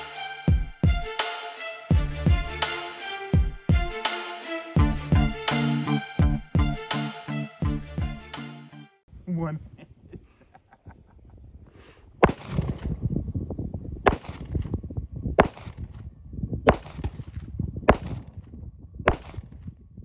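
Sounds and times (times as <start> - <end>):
pistol shots: 12.2 - 12.9, 14.0 - 14.7, 15.4 - 15.9, 16.7 - 18.4, 19.1 - 19.6.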